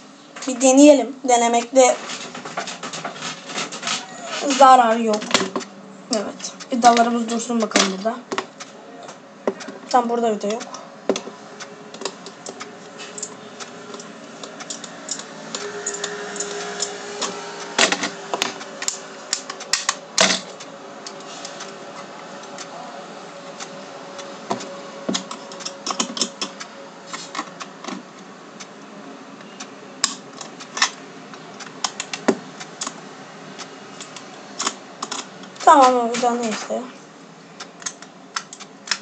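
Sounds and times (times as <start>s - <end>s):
plastic parts clicking together: 37.6s - 39.0s.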